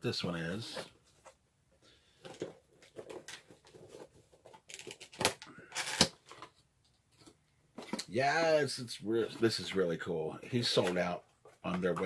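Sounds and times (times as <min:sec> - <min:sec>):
packaging rustling and crinkling: 0:02.3 - 0:06.6
sharp cracks of packaging: 0:04.7 - 0:06.2.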